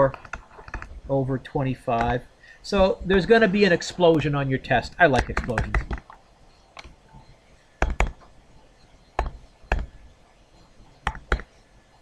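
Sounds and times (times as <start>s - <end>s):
stylus tapping on tablet screen: 1.8s - 3.4s, 5.1s - 8.4s, 9.1s - 10.0s, 11.0s - 11.6s.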